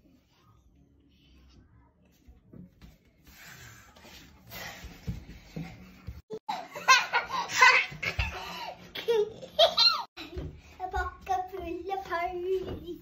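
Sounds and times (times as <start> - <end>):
girls laughing: 6.3 - 10.2.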